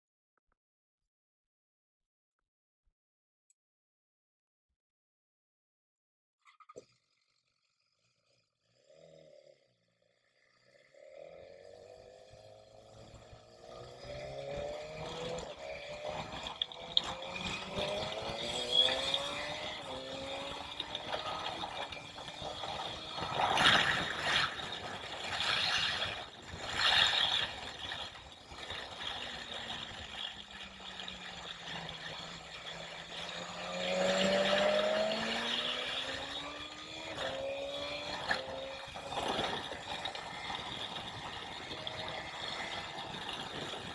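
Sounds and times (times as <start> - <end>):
motorcycle engine revving through gears: 6.8 - 43.9
wind noise on microphone: 39.1 - 43.9.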